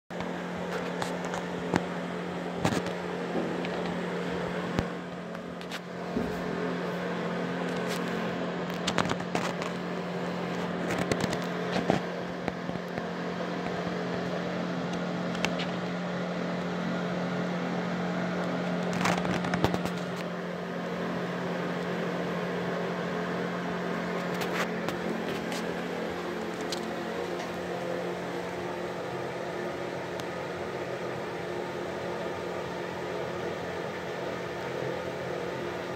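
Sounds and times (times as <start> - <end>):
exhaust fan humming: 0.1 - 35.9
clicks and crackles: 0.2 - 2.0, 2.6 - 4.0, 4.6 - 5.9, 7.6 - 16.0, 18.4 - 20.4, 24.0 - 27.6.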